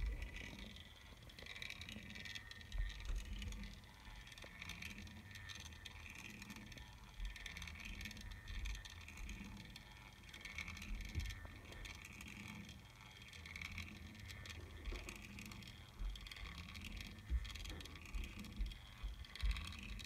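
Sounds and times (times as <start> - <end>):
small motor whirring: 0.0 - 20.0.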